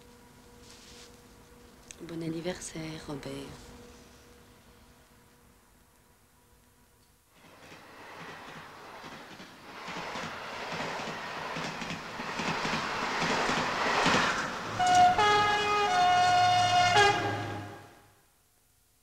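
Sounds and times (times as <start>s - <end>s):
train rushing on rails: 7.4s - 18.0s
train horn: 14.7s - 18.2s.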